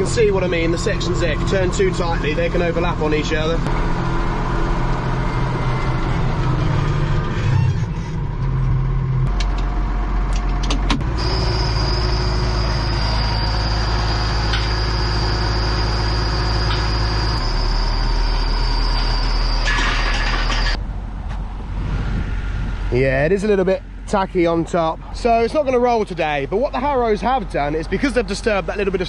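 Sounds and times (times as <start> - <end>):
tractor diesel engine running: 0.0 - 29.0
thin high whine: 11.0 - 20.8.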